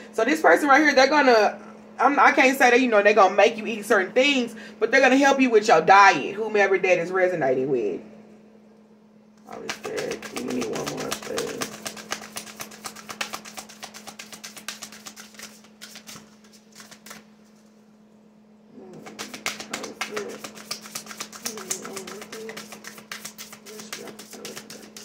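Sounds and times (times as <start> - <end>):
steady low hum: 0.0 - 25.0
cards being shuffled: 9.5 - 17.7, 19.0 - 25.0.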